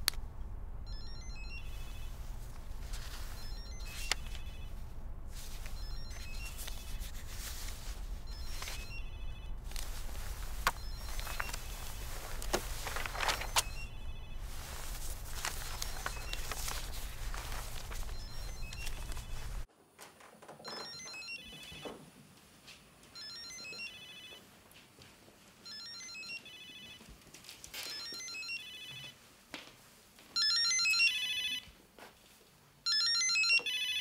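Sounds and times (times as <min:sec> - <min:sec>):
steady hiss and hum: 0:00.0 - 0:19.7
phone ringtone: 0:00.8 - 0:19.6, 0:20.6 - 0:21.9, 0:23.2 - 0:24.4, 0:25.6 - 0:27.0, 0:27.8 - 0:29.2, 0:30.4 - 0:31.7, 0:32.9 - 0:34.0.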